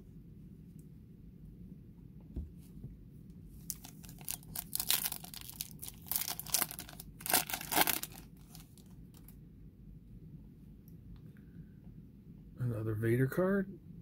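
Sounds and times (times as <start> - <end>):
foil wrapper tearing and crinkling: 3.7 - 9.3.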